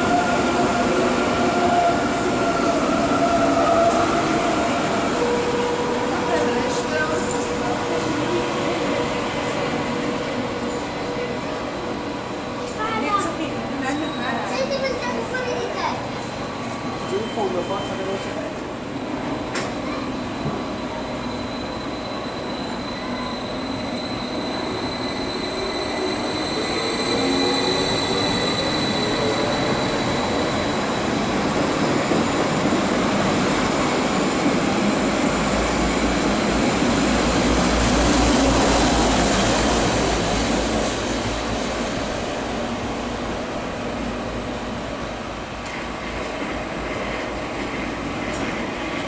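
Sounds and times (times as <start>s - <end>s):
train wheels squealing: 13.0s - 18.5s, 19.4s - 36.0s
deep train rumble: 23.2s - 49.0s.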